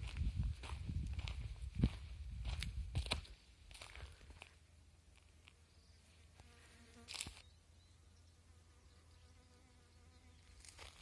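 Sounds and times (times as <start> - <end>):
flying insect buzzing: 6.4 - 7.4.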